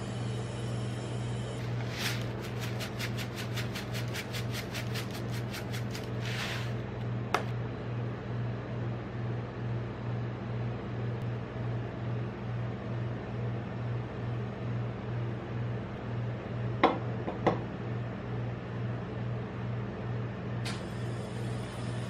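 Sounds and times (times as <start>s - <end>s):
sprinkles rattling in shaker: 1.6s - 6.8s.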